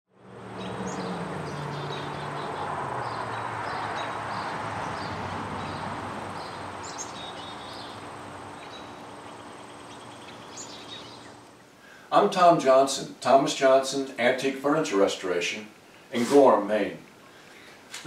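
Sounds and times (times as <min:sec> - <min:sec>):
high bird chirps: 0:00.6 - 0:05.8, 0:06.4 - 0:11.4.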